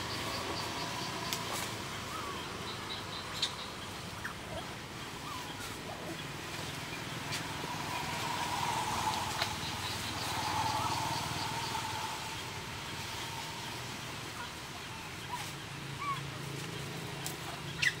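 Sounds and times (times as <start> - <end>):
distant engine hum: 0.0 - 18.0.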